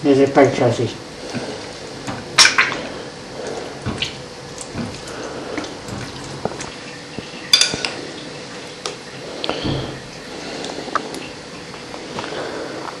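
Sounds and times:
sharp ceramic clink: 7.5 - 7.9.

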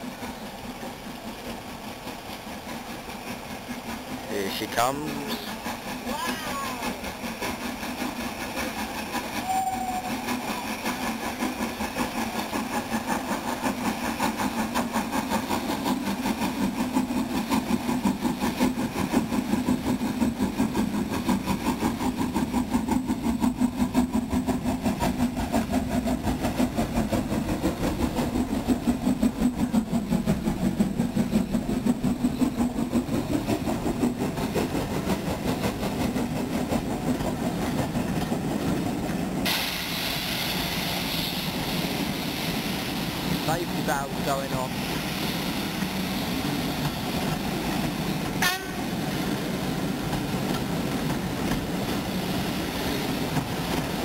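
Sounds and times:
steam locomotive exhaust beat: 0.0 - 54.0
train rumble: 0.0 - 54.0.

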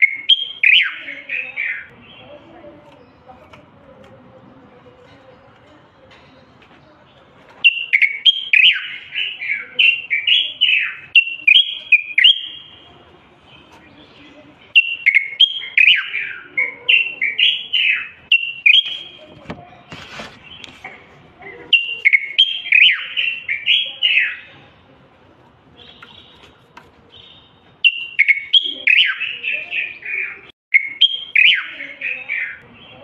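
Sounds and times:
bird singing whistled phrases: 0.0 - 2.2, 7.6 - 12.9, 14.7 - 19.2, 21.7 - 24.5, 27.1 - 33.0.

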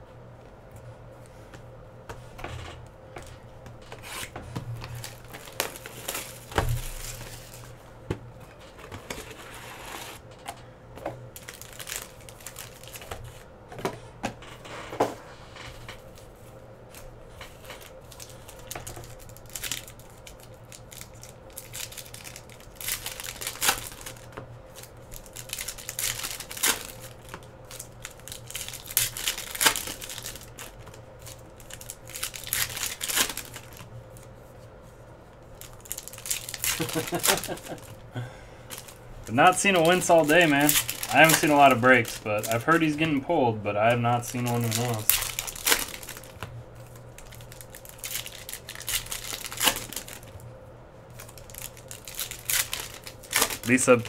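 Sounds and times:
wrappers tearing and crinkling: 3.8 - 7.8, 11.3 - 13.5, 15.6 - 34.4, 35.3 - 38.1, 38.7 - 50.4, 51.1 - 54.0
cards being handled: 35.6 - 38.0, 38.7 - 46.5.

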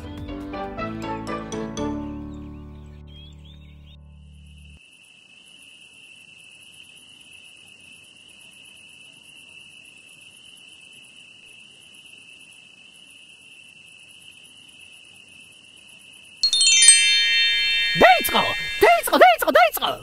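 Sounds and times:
crickets chirping: 4.6 - 16.9.

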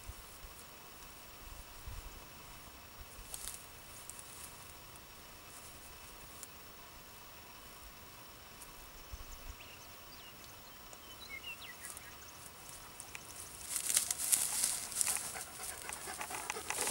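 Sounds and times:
puppy panting and sniffing: 12.7 - 16.9.

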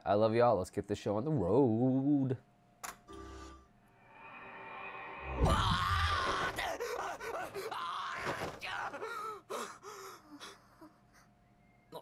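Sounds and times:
man gasping and crying out: 5.5 - 10.9.

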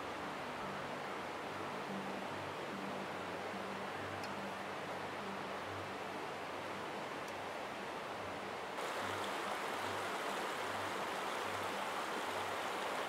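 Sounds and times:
running water rushing: 8.7 - 13.0.

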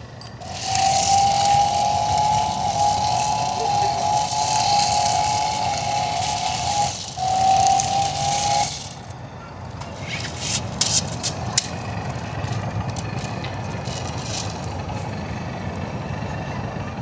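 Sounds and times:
toy car motor whine: 0.0 - 15.8
sharp clicks and rattles: 9.8 - 15.2.

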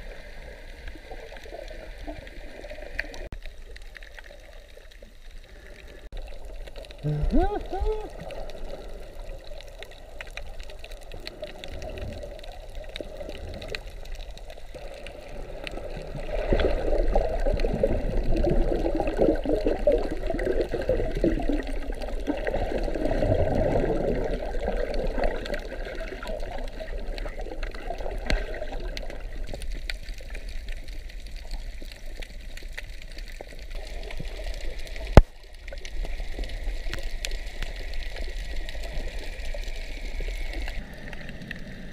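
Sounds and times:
air bubbles gurgling: 0.0 - 41.9
underwater hiss: 36.2 - 41.9.

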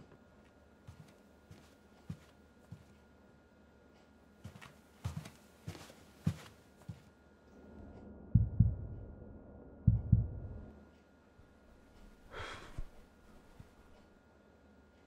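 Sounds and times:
deep double thumps: 8.3 - 9.2, 9.8 - 10.7
breathy sigh: 12.3 - 13.0.

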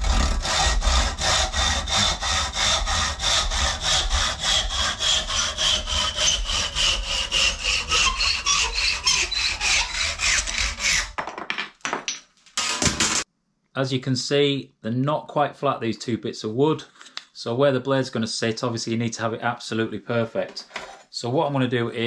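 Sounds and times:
hand saw cutting wood: 0.0 - 11.2, 12.6 - 13.3.

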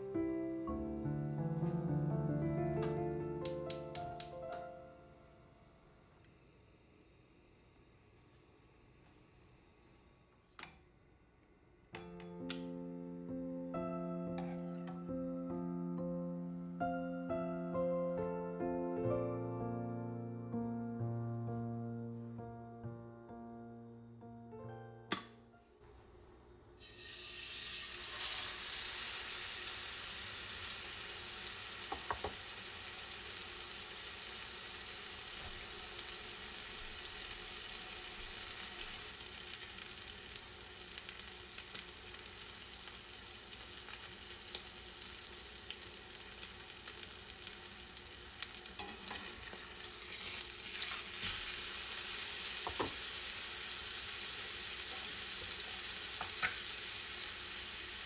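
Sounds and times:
steak sizzling in pan: 26.8 - 58.0.

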